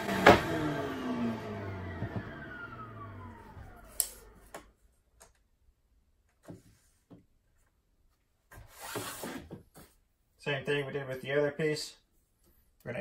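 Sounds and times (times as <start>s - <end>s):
saw blade whine coasting down: 0.0s - 4.5s.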